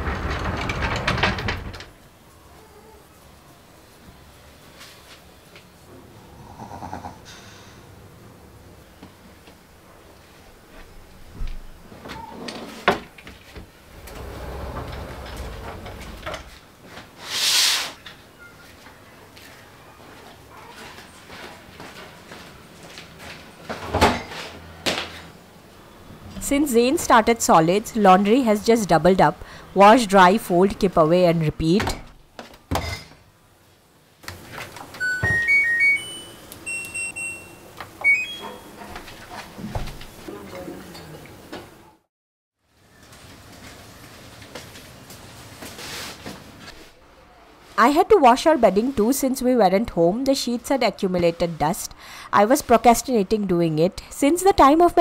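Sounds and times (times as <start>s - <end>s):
sliding door rolling on track: 0.0s - 2.0s, 13.7s - 16.8s
brief swishing hiss: 17.2s - 18.0s.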